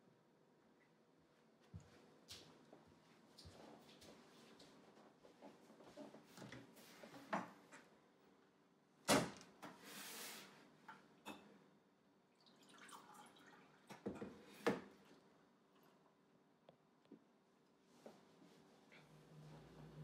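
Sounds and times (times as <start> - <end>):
water pouring into a glass: 12.4 - 14.0.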